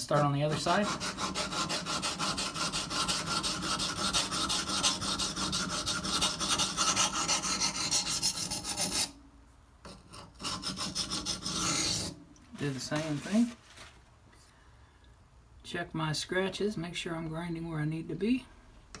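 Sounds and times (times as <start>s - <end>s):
blade scraping: 0.0s - 9.2s, 9.9s - 13.9s
blade grinding on whetstone: 0.1s - 9.2s, 9.9s - 12.2s.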